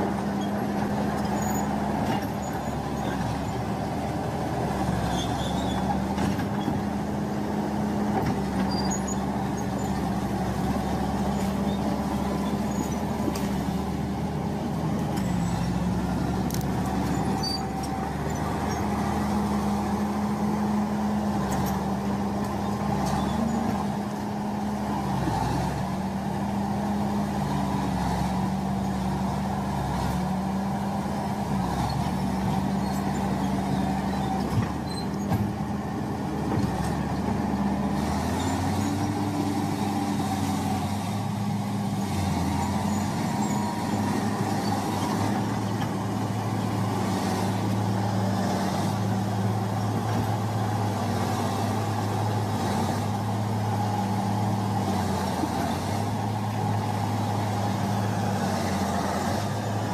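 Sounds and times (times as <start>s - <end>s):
heavy diesel engines running: 0.0s - 59.9s.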